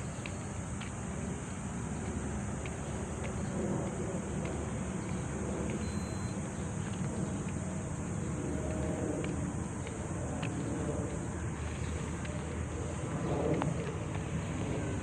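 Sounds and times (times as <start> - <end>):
constant high hiss: 0.0 - 15.0
distant traffic rumble: 0.0 - 15.0
thin beep: 5.8 - 6.4
faint chirps: 5.8 - 6.7.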